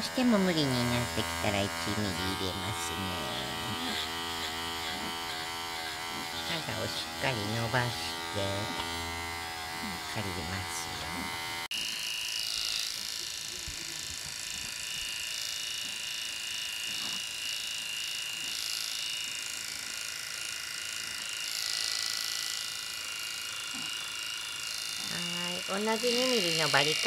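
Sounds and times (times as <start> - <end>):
electric clippers whining: 0.0 - 27.0.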